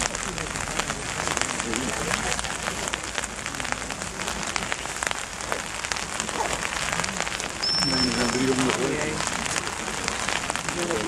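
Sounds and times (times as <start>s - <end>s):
steady rain falling: 0.0s - 11.0s
high steady whistle: 7.6s - 8.7s.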